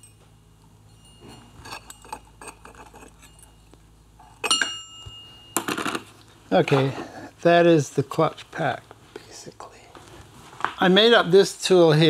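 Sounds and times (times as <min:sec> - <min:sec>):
metallic clicks and scrapes: 0:01.2 - 0:03.5
sharp metal clink ringing: 0:04.4 - 0:05.8.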